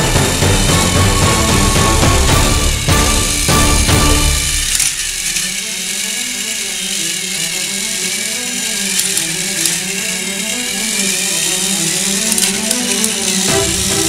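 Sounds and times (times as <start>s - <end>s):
background music: 0.0s - 4.9s, 7.8s - 14.0s
toy train motors whirring: 0.0s - 14.0s.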